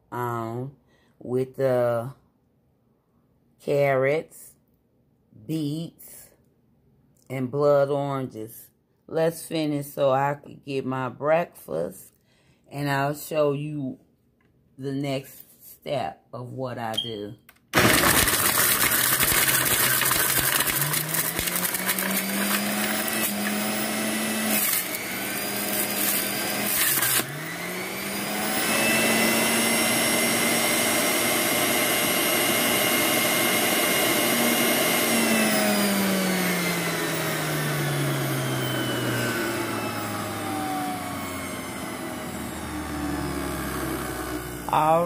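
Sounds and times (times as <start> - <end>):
juicer motor grinding: 17.8 - 45.0.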